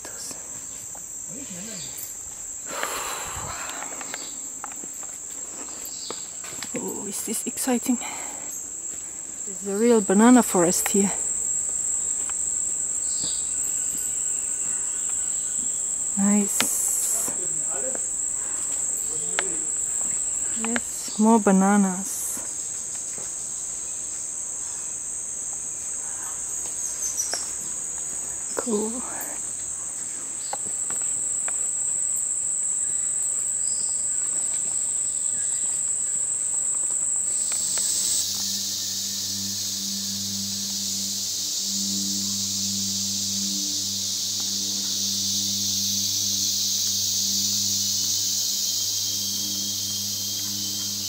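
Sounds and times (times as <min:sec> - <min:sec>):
insect chorus drone: 0:00.0 - 0:51.0
broad hiss: 0:02.6 - 0:04.6.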